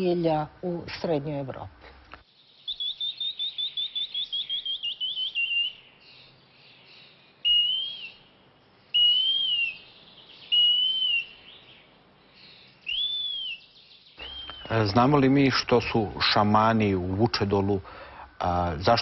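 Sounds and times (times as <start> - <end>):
short rising bird chirps: 2.5 - 14.9
arched bird whistles: 2.6 - 5.9, 7.4 - 8.3, 8.9 - 11.6, 12.8 - 14.9.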